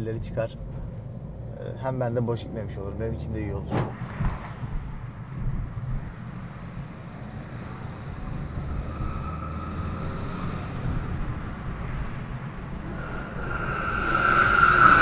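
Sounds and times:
car engine and road rumble: 0.0 - 15.0
steady high tone: 12.8 - 15.0.

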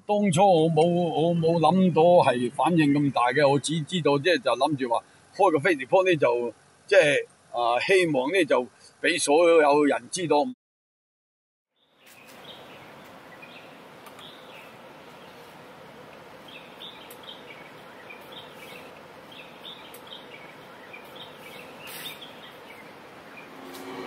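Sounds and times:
small birds chirping: 11.7 - 23.8.

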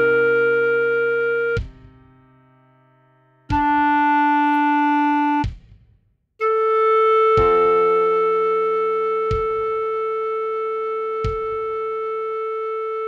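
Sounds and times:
slow clarinet melody: 0.0 - 1.8, 3.5 - 5.5, 6.4 - 13.0
piano chord: 6.9 - 10.4.

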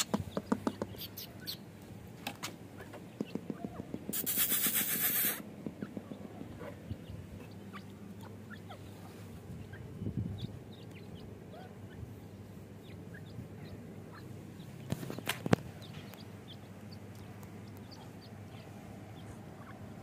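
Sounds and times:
sharp knocks: 0.0 - 1.0
chicks peeping: 0.0 - 20.0.

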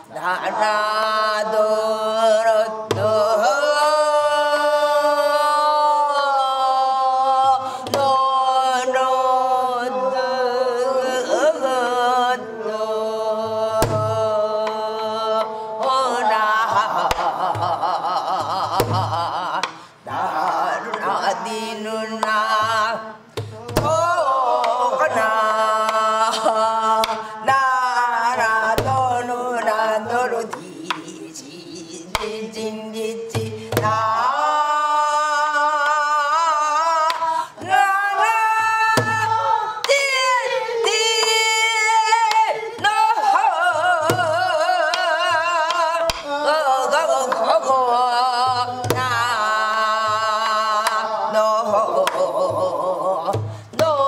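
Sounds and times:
woman singing with vibrato: 0.0 - 54.0
barrel drum thumps: 23.4 - 24.2, 38.9 - 40.0.

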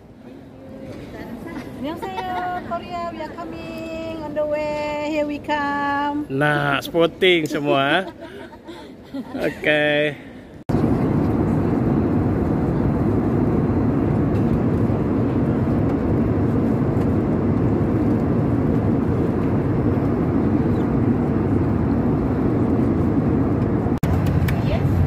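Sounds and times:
airliner cabin engine roar: 10.4 - 25.0.

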